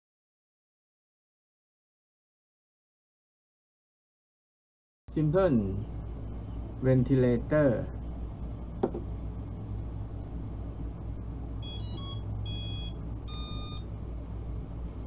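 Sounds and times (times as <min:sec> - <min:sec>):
motor power-up beeps: 0:11.6 - 0:13.9.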